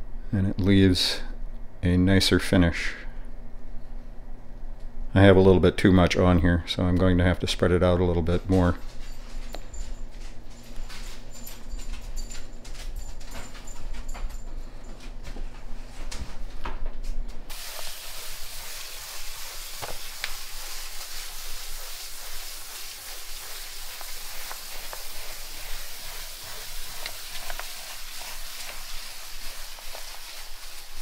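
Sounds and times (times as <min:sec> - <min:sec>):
paint roller spreading wet coat: 0:17.5 - 0:31.0
sanding sponge scratching concrete: 0:20.2 - 0:31.0.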